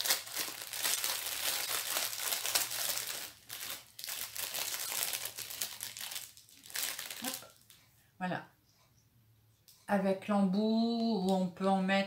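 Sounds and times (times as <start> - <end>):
plastic packet crinkling: 0.0 - 7.8.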